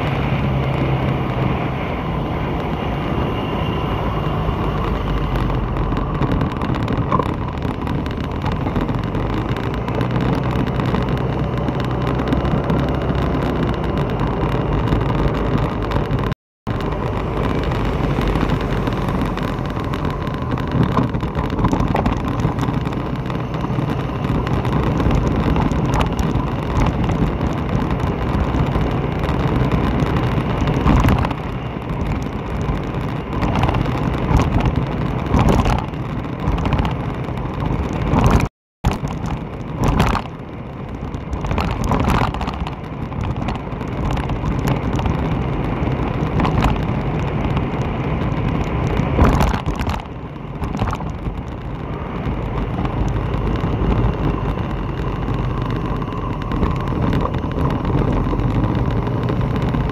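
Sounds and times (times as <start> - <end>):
vehicle engine and road drone: 0.0 - 59.9
wind on microphone: 0.0 - 59.9.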